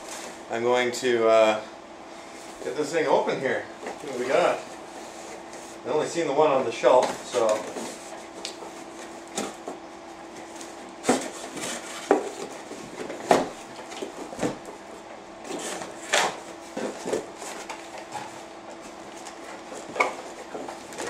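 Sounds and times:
knocks scrapes and rustles: 0:10.4 - 0:14.6, 0:15.4 - 0:21.0.

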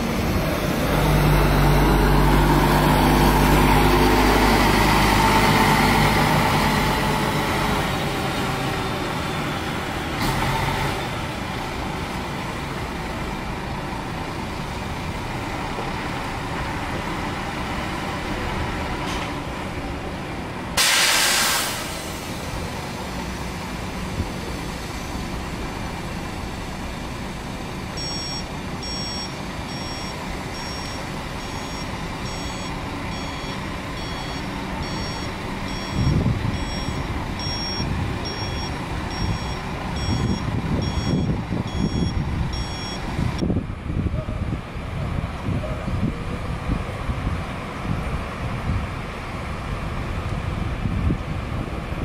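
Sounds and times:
bus diesel engines running: 0:00.0 - 0:52.0
air brakes hissing: 0:20.8 - 0:22.7
reversing alarm beeping: 0:27.9 - 0:43.1.

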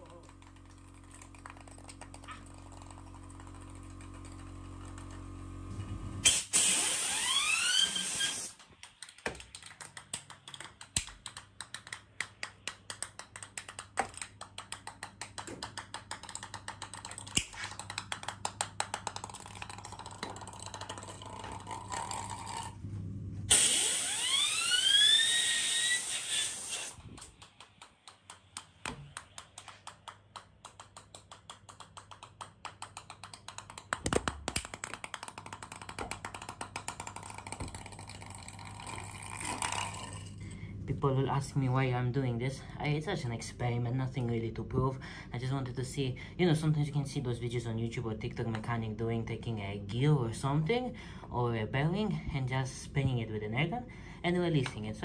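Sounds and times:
compressed air gun hiss: 0:06.2 - 0:08.6, 0:23.5 - 0:27.0
spinning wheel whine: 0:06.7 - 0:08.6, 0:23.5 - 0:27.0.

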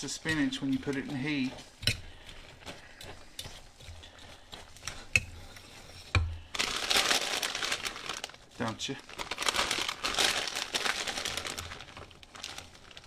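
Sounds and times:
whisk scraping a saucepan: 0:00.0 - 0:06.5
plastic bag crinkling: 0:06.4 - 0:13.0.

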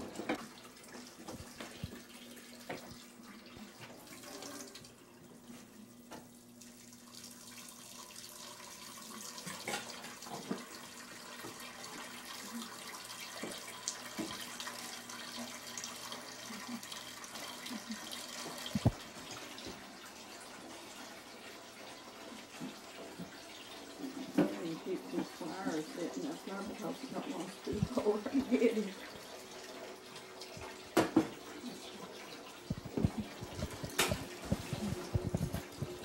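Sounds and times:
tap running into sink: 0:01.2 - 0:03.0, 0:13.4 - 0:14.5, 0:18.4 - 0:19.0, 0:30.5 - 0:31.5, 0:32.6 - 0:36.0.

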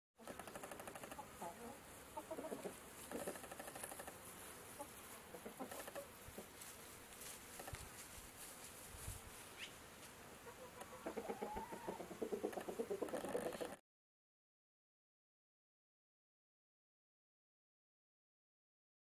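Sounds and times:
chickens clucking: 0:00.2 - 0:06.7, 0:10.4 - 0:13.8.

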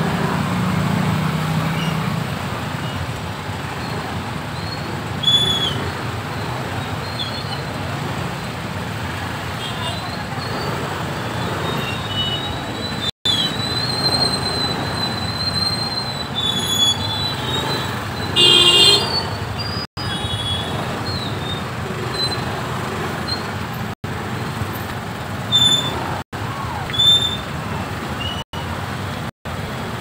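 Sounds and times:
road traffic noise: 0:00.0 - 0:30.0
vehicle horn honking: 0:18.3 - 0:19.5.

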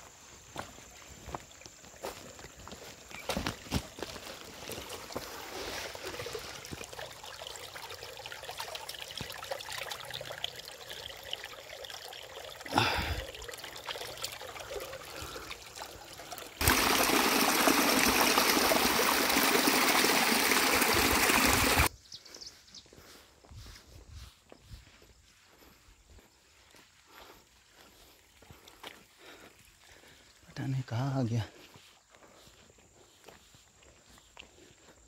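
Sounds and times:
stream trickling over rocks: 0:00.4 - 0:21.9, 0:28.2 - 0:31.4.

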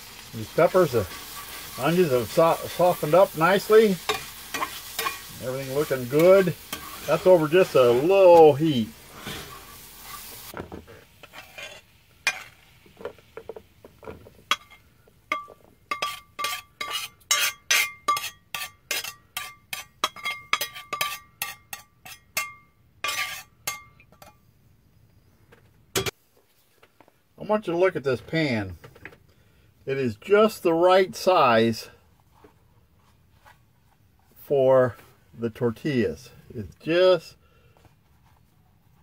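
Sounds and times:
spatula scraping skillet: 0:00.1 - 0:24.4.

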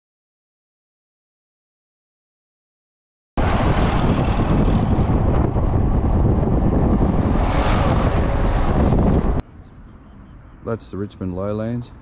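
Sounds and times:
wind buffeting microphone: 0:03.4 - 0:10.7
road noise: 0:03.4 - 0:12.0.

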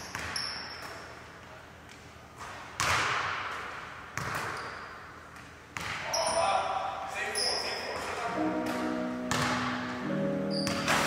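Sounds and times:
basketball bouncing on gym floor: 0:00.0 - 0:01.0, 0:02.4 - 0:06.2, 0:09.3 - 0:09.9, 0:10.6 - 0:11.0.

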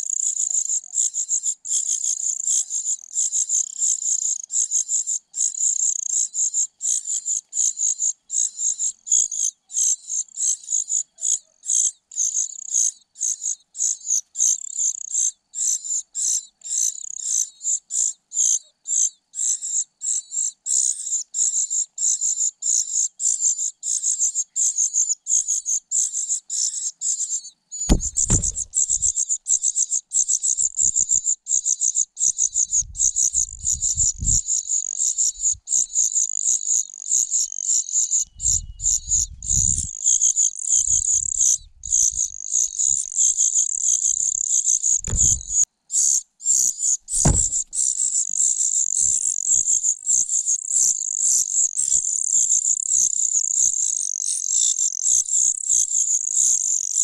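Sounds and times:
low thump: 0:27.9 - 0:29.1, 0:45.0 - 0:45.6, 0:47.2 - 0:47.7
nestling birds begging: 0:27.9 - 0:29.3, 0:38.4 - 0:45.6.

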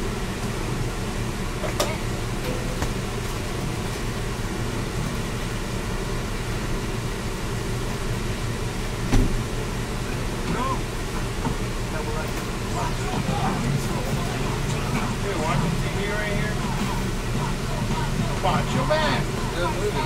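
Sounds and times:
air conditioners humming: 0:00.0 - 0:20.0.

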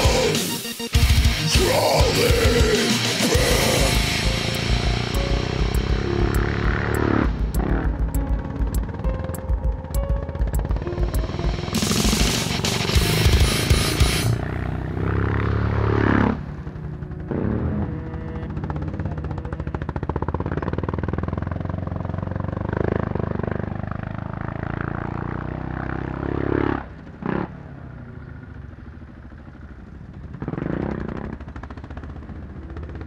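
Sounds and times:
quad engine revving: 0:00.0 - 0:09.0, 0:10.7 - 0:27.5.

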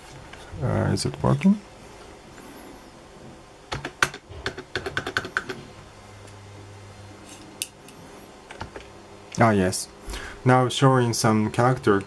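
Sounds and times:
keyboard typing: 0:03.7 - 0:05.6.

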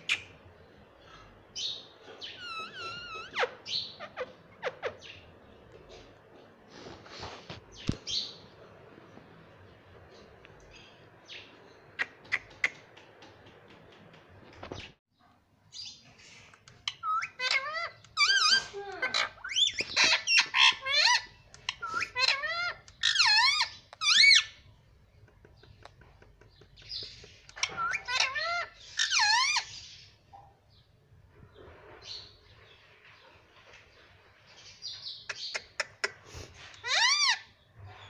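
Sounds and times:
parrot calling and chattering: 0:01.6 - 0:05.3, 0:16.5 - 0:24.6, 0:25.3 - 0:30.0, 0:35.2 - 0:37.5.

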